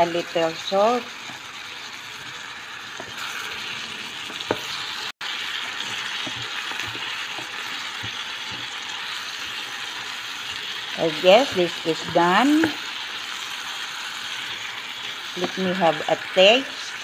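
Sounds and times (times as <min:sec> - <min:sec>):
vegetables sizzling in a skillet: 0:00.0 - 0:17.0
spatula scraping and tapping pan: 0:02.2 - 0:03.4, 0:04.2 - 0:04.8, 0:05.6 - 0:09.7.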